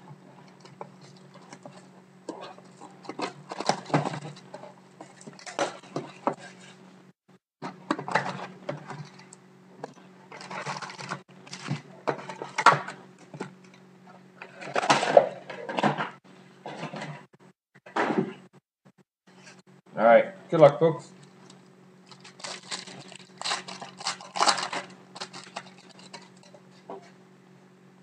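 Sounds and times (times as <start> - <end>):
foil packs rustling: 9.9 - 12.7, 22.0 - 26.5.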